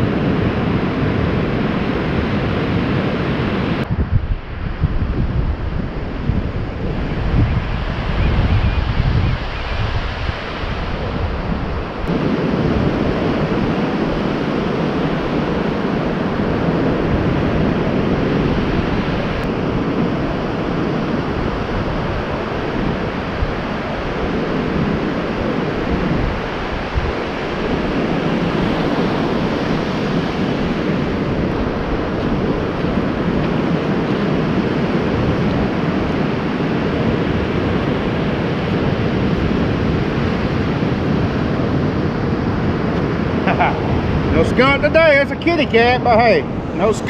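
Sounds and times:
ocean surf breaking: 0.0 - 47.0
wind on microphone: 0.0 - 47.0.

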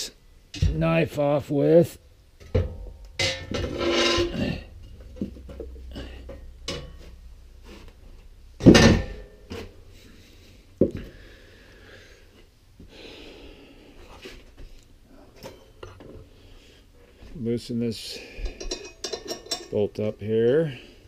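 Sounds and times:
objects clattering: 2.4 - 10.1.

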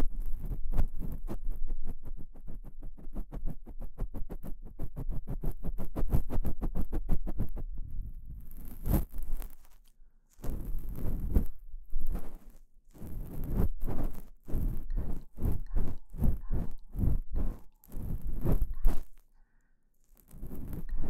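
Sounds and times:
ear pick scraping: 8.4 - 19.4, 20.0 - 21.0.

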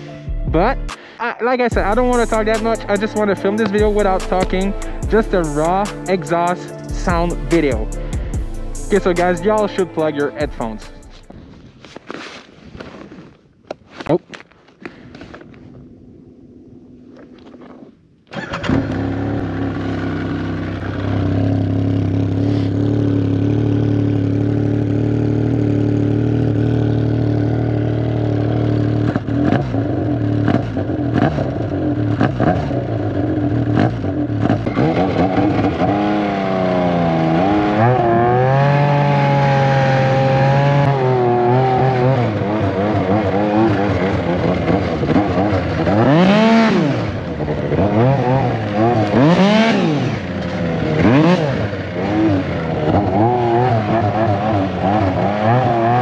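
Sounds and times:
snowmobile engine revving: 18.3 - 56.0.

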